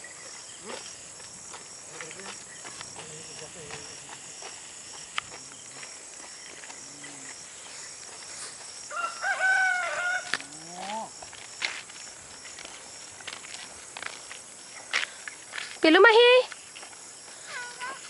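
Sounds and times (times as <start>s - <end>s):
insects chirping: 0.0s - 18.0s
rooster crowing: 8.9s - 10.4s.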